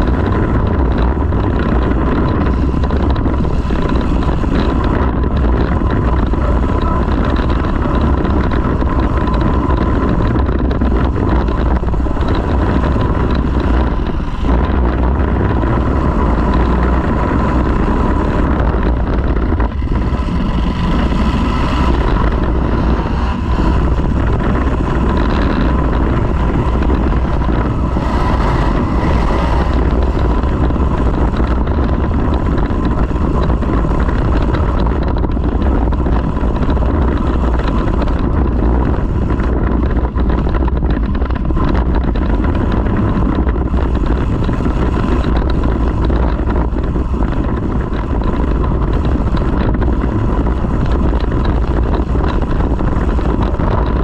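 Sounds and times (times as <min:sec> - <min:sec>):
car engine rumbling loudly: 0:00.0 - 0:54.0.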